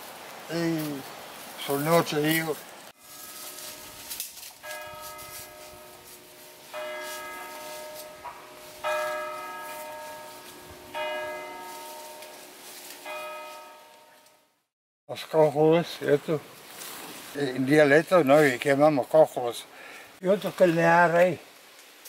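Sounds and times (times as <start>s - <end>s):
church bell tolling: 3.0s - 14.2s.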